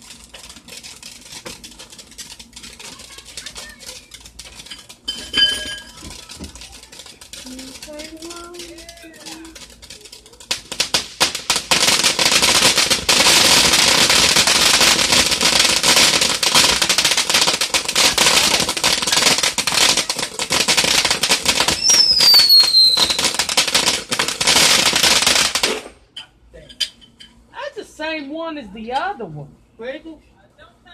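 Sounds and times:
firework crackling and hissing: 0.0 - 25.9.

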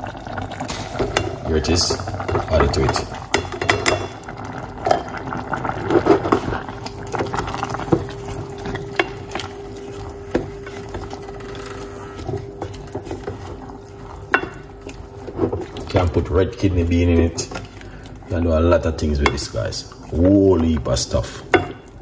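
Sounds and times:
liquid splashing and bubbling: 0.0 - 22.0
spoon knocking against pot: 3.3 - 4.2, 21.5 - 21.8.

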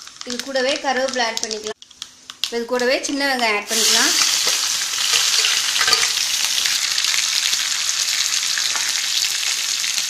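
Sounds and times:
shallots sizzling in hot oil: 0.0 - 10.0
steel ladle stirring: 3.8 - 6.2.

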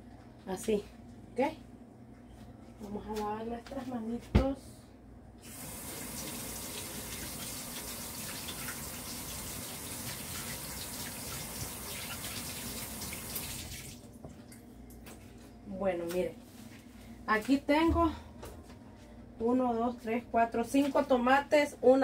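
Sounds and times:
water running from a tap: 5.4 - 14.1.

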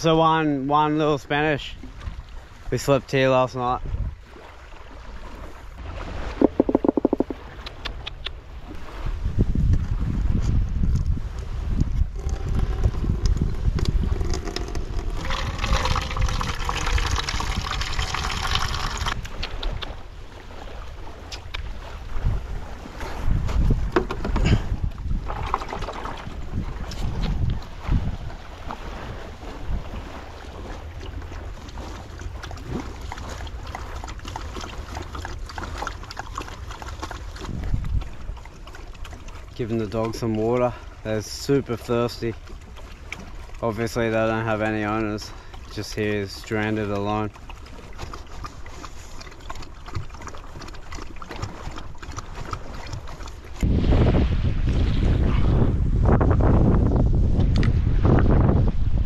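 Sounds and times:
wind rumble on microphone: 3.5 - 59.0
dogs lapping water: 4.2 - 9.0, 11.1 - 55.6
water pouring into plastic bowl: 12.2 - 19.2.

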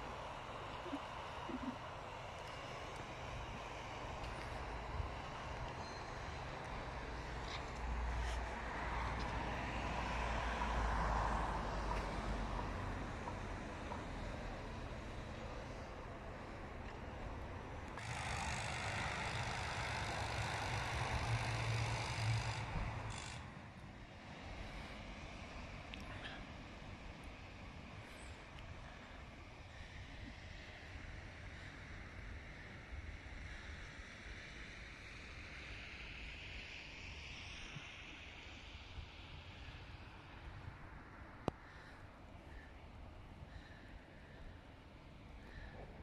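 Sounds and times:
vehicle driving past: 2.6 - 27.9.

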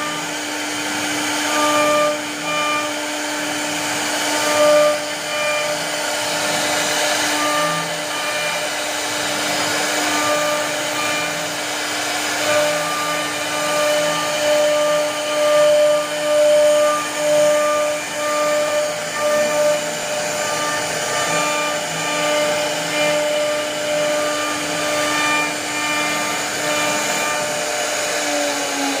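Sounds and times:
router bit cutting wood: 0.0 - 29.0
router spindle whine: 0.0 - 29.0.

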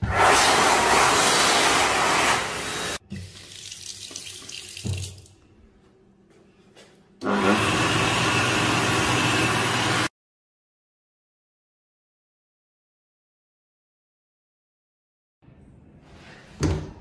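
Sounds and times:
hand dryer blowing: 0.0 - 3.0, 7.2 - 10.1.

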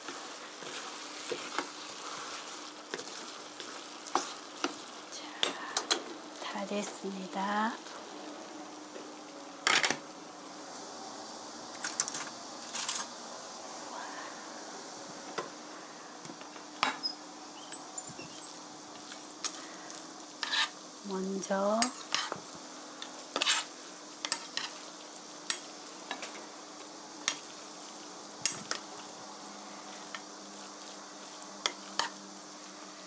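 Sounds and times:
spoons stirring food in pot: 0.0 - 5.6, 20.4 - 20.8, 21.8 - 22.4, 23.0 - 26.4, 29.8 - 32.8
faint sizzle: 0.0 - 33.0.

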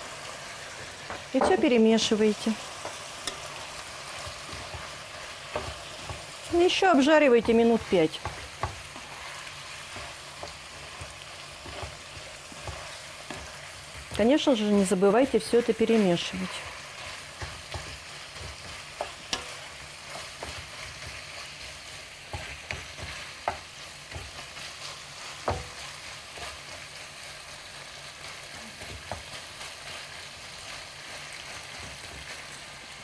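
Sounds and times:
meat sizzling in frying pan: 0.0 - 33.0
spatula knocking and scraping pan: 1.0 - 2.1, 2.7 - 26.7.

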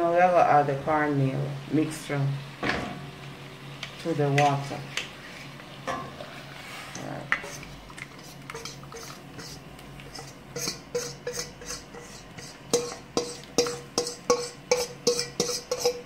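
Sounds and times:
metal utensils clinking in pot: 7.0 - 16.0.

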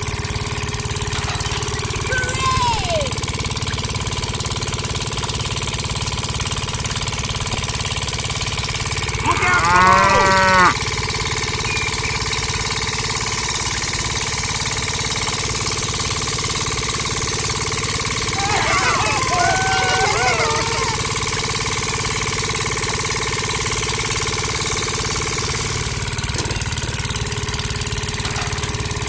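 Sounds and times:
small engine chugging: 0.0 - 29.0
cow mooing: 9.2 - 10.8, 18.3 - 21.0.

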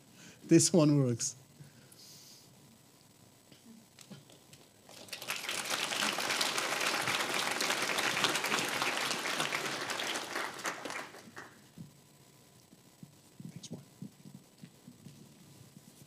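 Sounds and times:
audience applauding: 4.9 - 11.6.

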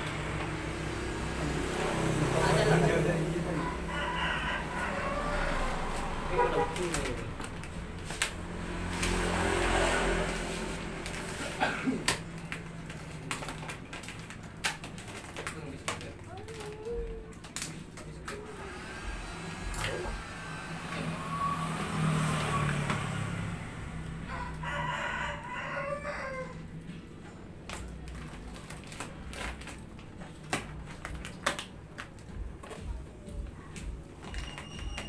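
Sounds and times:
plastic film crackling and clicking: 5.6 - 18.6, 27.1 - 35.0.

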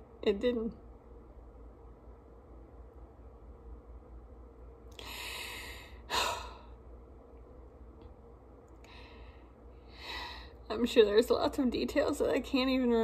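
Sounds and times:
woman breathing: 4.9 - 6.9, 8.8 - 10.6
woman sighing: 5.0 - 6.7.

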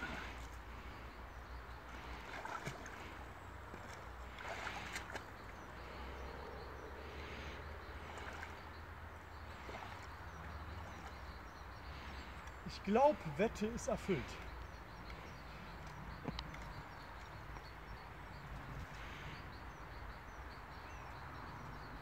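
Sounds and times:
person wading through water: 0.0 - 6.2, 7.0 - 19.4.

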